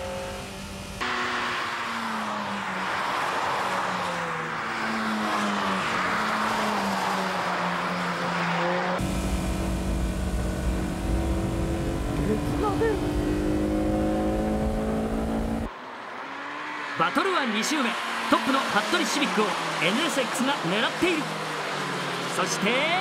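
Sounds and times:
race car engines passing: 0:00.0 - 0:23.0
engine drone inside car cabin: 0:09.0 - 0:15.7.

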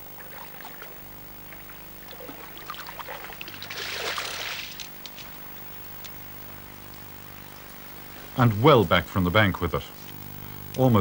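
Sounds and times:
fish splashing in water: 0:00.1 - 0:05.0.

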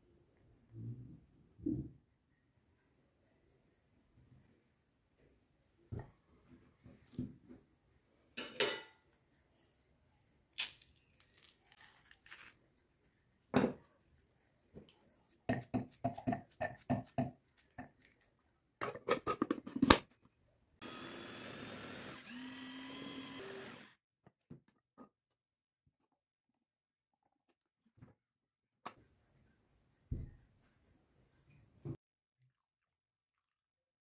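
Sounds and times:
electric food chopper motor: 0:20.8 - 0:24.0.

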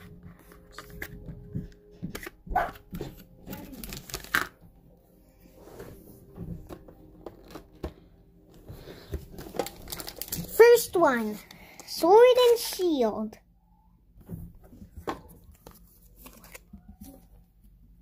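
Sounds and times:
trading cards and foil packs rustling: 0:00.0 - 0:04.6, 0:06.7 - 0:13.1, 0:15.3 - 0:17.3.

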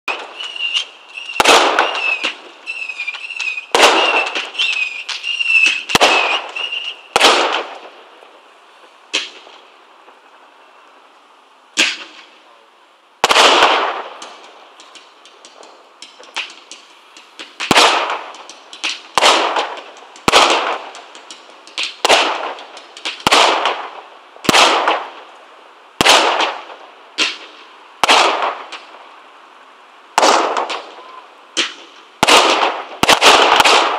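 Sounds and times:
fireworks bursting with bangs: 0:00.0 - 0:12.5, 0:13.2 - 0:33.9
high wavering whistle: 0:00.3 - 0:07.2.

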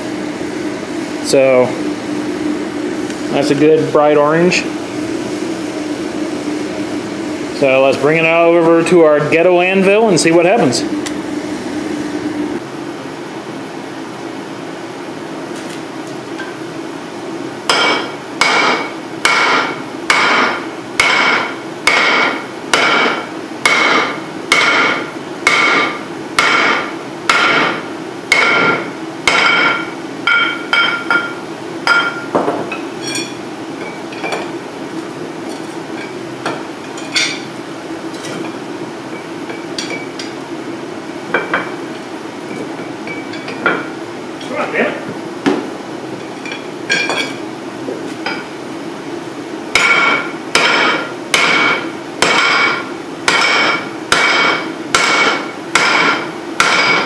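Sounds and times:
steady hum: 0:00.0 - 0:57.0
hammer ringing on hot steel: 0:17.7 - 0:34.5, 0:36.0 - 0:37.5, 0:39.1 - 0:40.4, 0:42.8 - 0:43.9, 0:46.4 - 0:47.4, 0:49.7 - 0:57.0.

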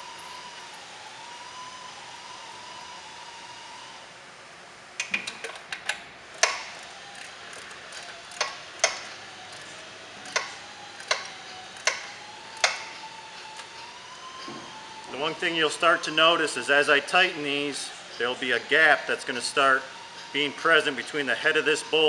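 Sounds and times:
hand ratchet clicking: 0:05.0 - 0:12.9.

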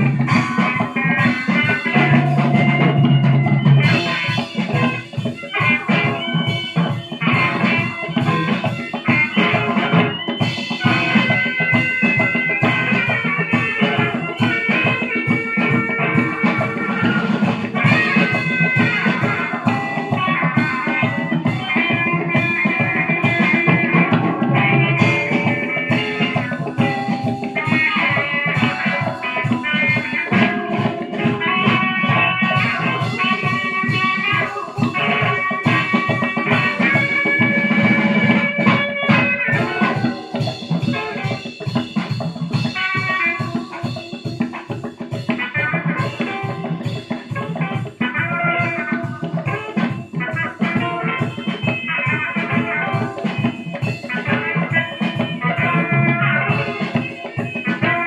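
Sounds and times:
bass line: 0:00.0 - 0:08.4, 0:17.0 - 0:40.9
drum kit beat: 0:00.0 - 0:58.0
electric guitar: 0:00.0 - 0:58.0.

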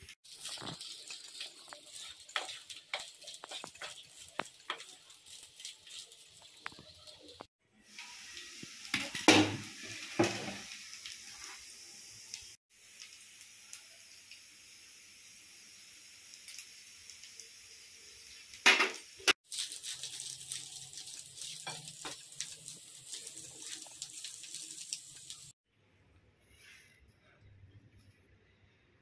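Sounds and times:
frying hiss: 0:00.0 - 0:25.6
spatula scraping rice in pan: 0:00.3 - 0:06.8.

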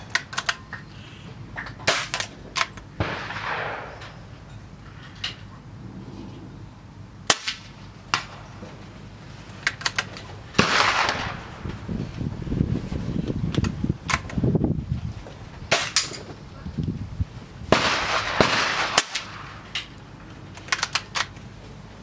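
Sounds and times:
air rifle cracks and clicks: 0:00.0 - 0:00.9, 0:01.6 - 0:02.9, 0:09.5 - 0:11.4, 0:13.5 - 0:14.4, 0:18.8 - 0:21.5.

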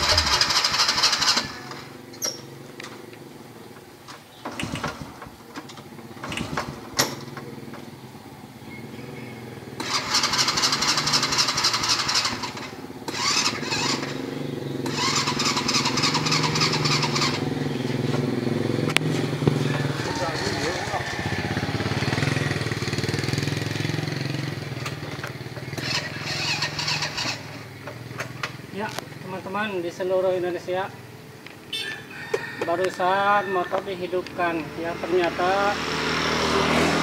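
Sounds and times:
motorcycle starter cranking: 0:00.0 - 0:03.0, 0:04.1 - 0:07.7, 0:09.8 - 0:18.4, 0:19.5 - 0:29.0.

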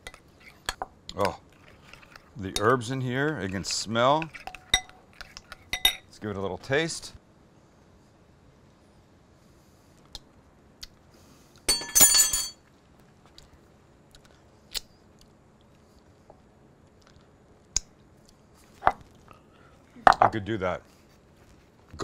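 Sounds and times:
metal spoon clinking on glass bowl: 0:05.8 - 0:06.0, 0:11.7 - 0:12.6
mouth clicks and lip smacks: 0:17.0 - 0:18.4.

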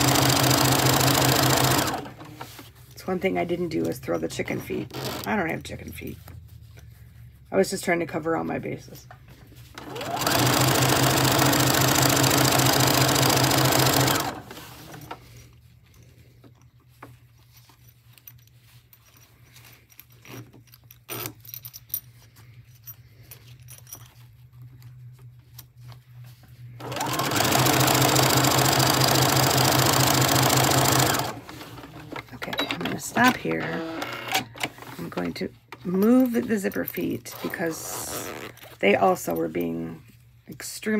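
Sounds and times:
sewing machine stitching: 0:00.0 - 0:02.7, 0:09.8 - 0:15.3, 0:26.8 - 0:35.1.

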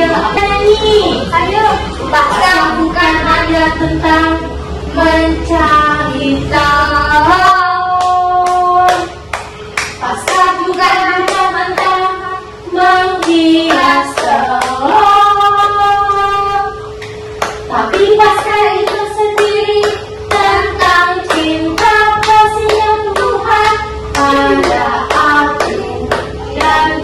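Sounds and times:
rhythmic hand clapping: 0:06.8 - 0:27.0.

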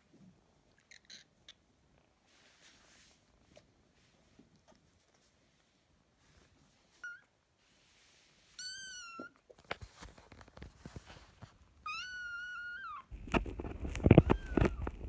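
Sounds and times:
scratchy rustling and clicks: 0:09.5 - 0:11.6, 0:13.1 - 0:15.0.

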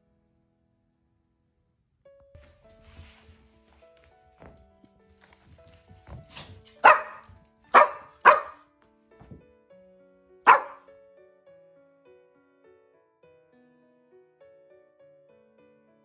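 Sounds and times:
soft piano music: 0:00.0 - 0:16.0
small dog barking: 0:06.3 - 0:08.6, 0:10.5 - 0:10.9.

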